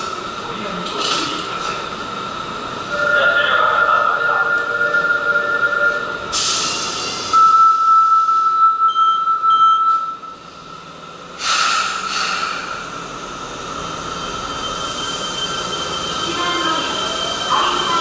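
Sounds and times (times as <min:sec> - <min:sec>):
train rushing out: 0:00.0 - 0:07.6, 0:10.4 - 0:18.0
steady high tone: 0:02.9 - 0:06.3
short beeps: 0:07.4 - 0:10.4.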